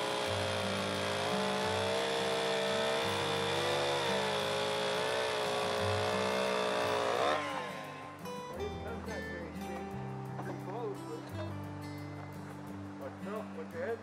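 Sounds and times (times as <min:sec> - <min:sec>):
chainsaw cutting log: 0:00.0 - 0:08.3.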